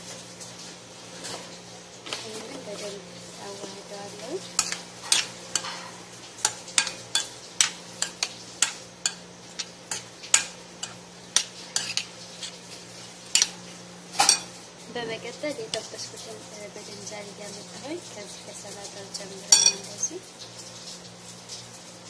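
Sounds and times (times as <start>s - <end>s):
metal spoon scraping a bowl: 11.7s - 12.7s.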